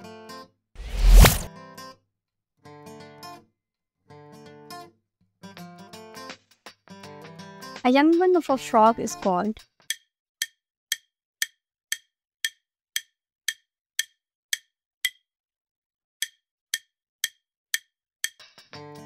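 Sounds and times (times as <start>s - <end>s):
music: 0.0s - 0.6s, 1.5s - 2.0s, 2.6s - 10.1s, 18.2s - 19.0s
clock-like timer ticks: 9.9s - 15.2s, 16.2s - 18.4s.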